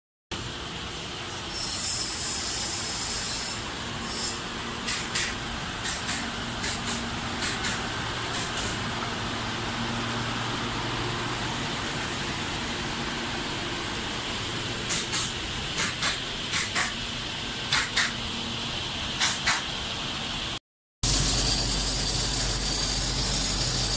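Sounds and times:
kiln compressor and fans whirring: 0.3s - 23.9s
sharp hiss-like bursts: 1.3s - 9.0s, 14.6s - 18.2s, 19.2s - 19.8s.

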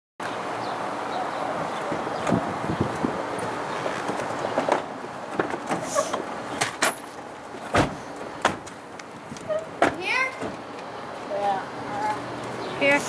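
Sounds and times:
heavy car door thump: 7.6s - 8.7s.

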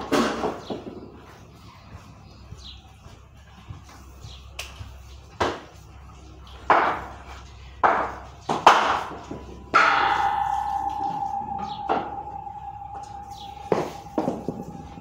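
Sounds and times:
ringing tone: 9.6s - 15.0s.

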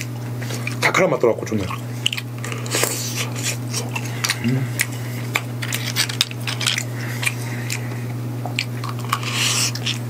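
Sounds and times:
wet slurp: 1.6s - 6.2s, 8.6s - 10.0s.

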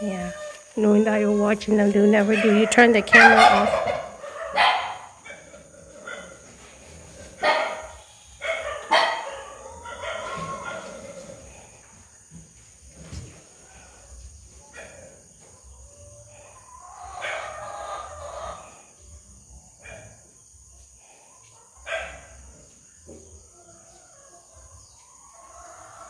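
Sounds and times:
farm animal calls: 0.0s - 11.7s, 13.6s - 19.0s.

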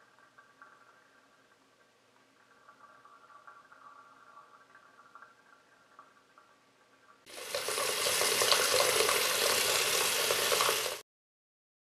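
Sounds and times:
water running from faucet into sink: 7.3s - 11.0s.

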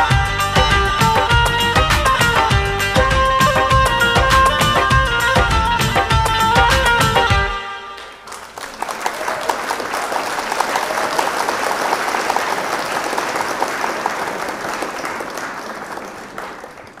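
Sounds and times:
audience applauding: 7.9s - 17.0s.

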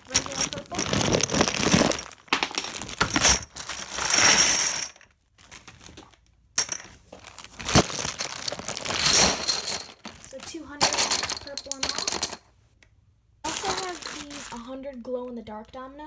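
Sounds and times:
plastic dominoes clattering: 0.0s - 5.1s, 6.6s - 12.4s, 13.5s - 14.6s.

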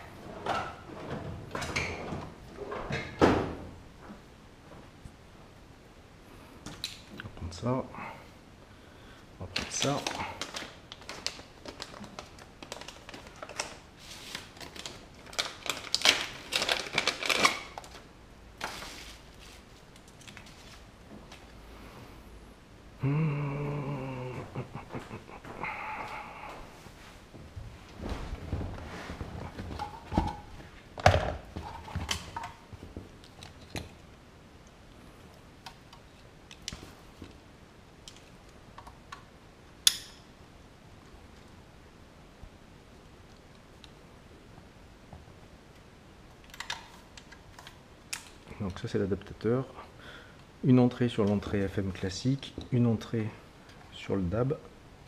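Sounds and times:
plastic packaging rustling: 9.5s - 21.5s, 27.0s - 34.0s.

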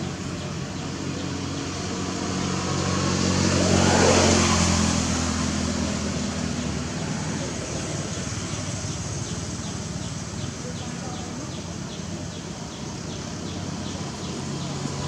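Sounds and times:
vehicle passing: 0.0s - 10.8s.

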